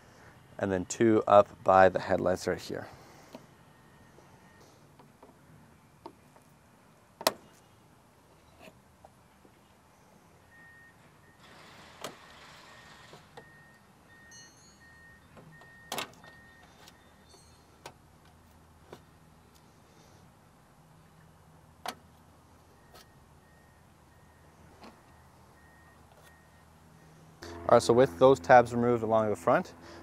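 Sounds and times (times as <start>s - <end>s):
faint single-pitch beeping: 3.6s - 4.9s, 10.5s - 11.5s, 12.7s - 17.8s, 22.6s - 28.5s.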